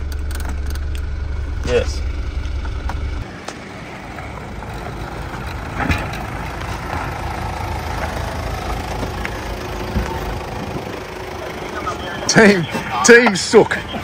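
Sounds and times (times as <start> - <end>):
engine idling: 0.0 - 14.0.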